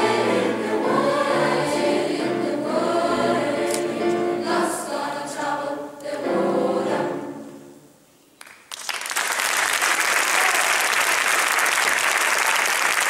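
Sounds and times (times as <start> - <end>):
choir singing chord: 0.0 - 7.9
audience applause: 8.4 - 13.0.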